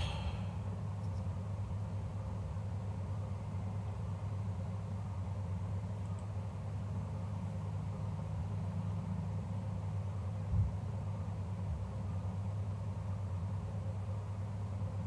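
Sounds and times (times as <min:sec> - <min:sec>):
faint hiss: 0:00.0 - 0:00.8
steady low hum: 0:00.0 - 0:15.0.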